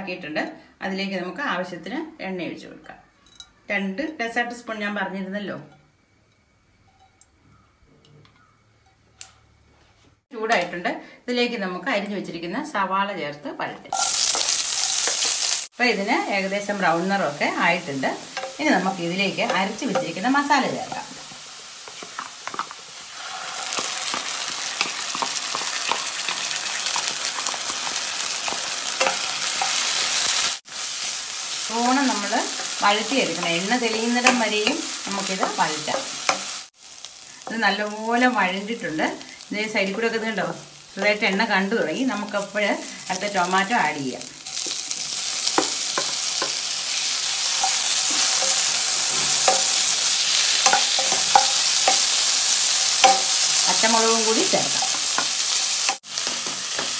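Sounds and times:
onions sizzling in oil: 13.9s - 56.9s.

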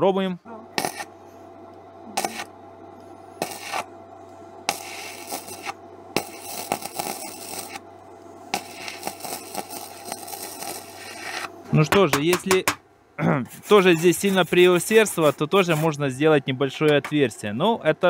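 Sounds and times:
welding arc crackling: 0.7s - 1.2s, 2.1s - 2.6s, 3.3s - 4.0s, 4.6s - 11.6s.

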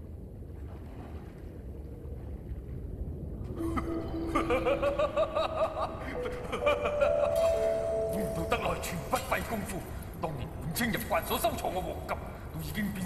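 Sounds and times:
low rumble: 1.6s - 10.8s
voice laughing: 3.6s - 7.9s
held music notes: 3.6s - 10.2s.

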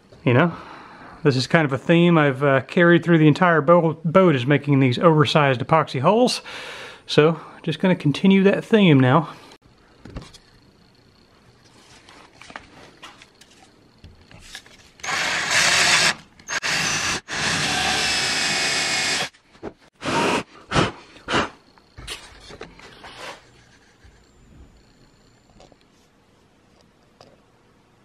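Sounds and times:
electric drill boring into wood: 15.0s - 19.3s.

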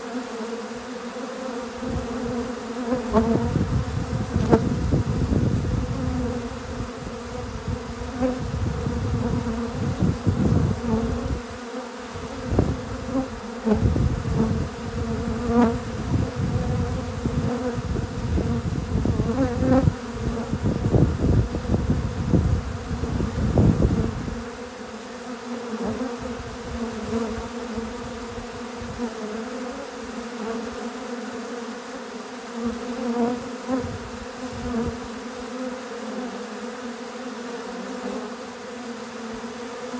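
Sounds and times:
bees buzzing: 0.0s - 39.9s.

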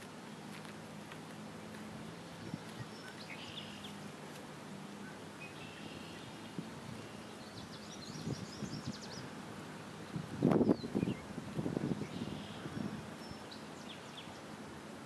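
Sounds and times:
soft clicks and rustles: 0.0s - 1.9s
steady background hiss: 0.0s - 15.0s
distant bird chirps: 2.3s - 4.1s, 5.0s - 9.4s, 12.0s - 14.5s.

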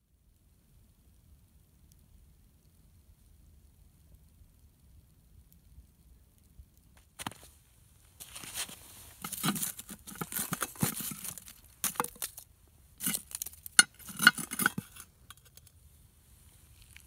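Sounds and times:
charcoal crunching: 8.2s - 15.7s, 16.7s - 17.0s
metal lid lifter scraping lid: 13.8s - 15.0s.

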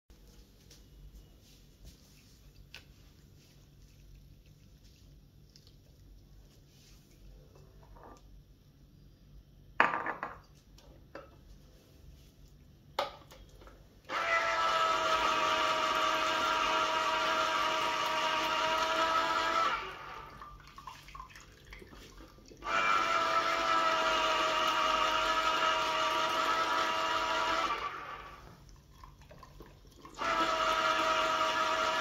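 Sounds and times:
citrus juicer motor whirring: 14.1s - 20.4s, 22.6s - 28.5s, 30.1s - 32.0s.

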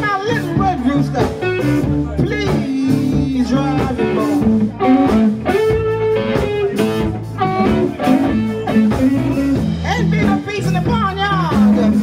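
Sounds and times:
bass guitar: 0.0s - 12.0s
electric guitar: 0.0s - 12.0s
amplified harmonica: 4.2s - 9.5s.

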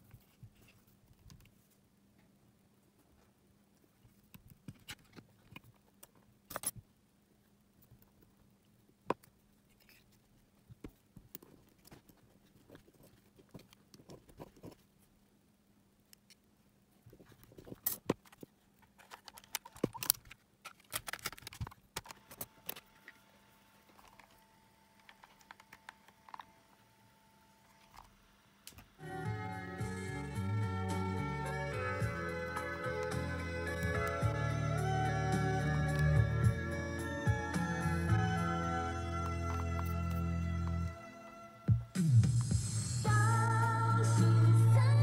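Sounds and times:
faint steady hum: 0.0s - 45.0s
hands handling plastic case clicks: 17.7s - 22.8s.

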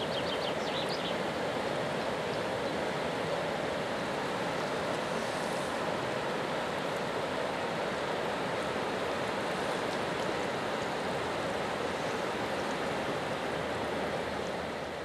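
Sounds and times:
river rushing over rapids: 0.0s - 15.0s.

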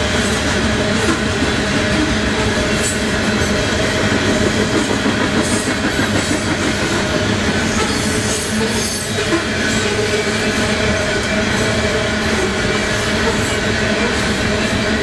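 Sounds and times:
freight train rolling past: 0.0s - 15.0s.

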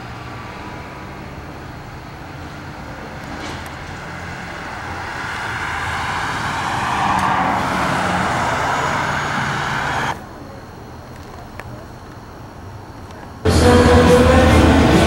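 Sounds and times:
passing vehicle rushing: 3.3s - 10.2s.

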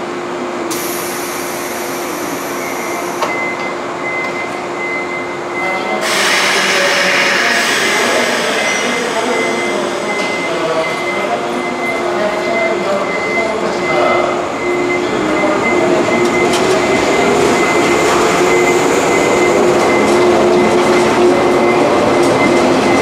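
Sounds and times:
electric train pulling out: 0.7s - 3.4s, 5.9s - 12.5s
steady high tone: 5.9s - 23.0s.

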